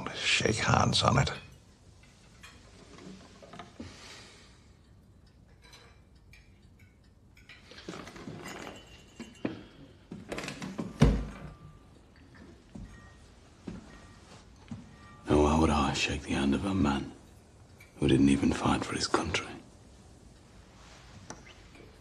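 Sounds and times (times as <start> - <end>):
rustle of someone moving: 20.4 - 22.0.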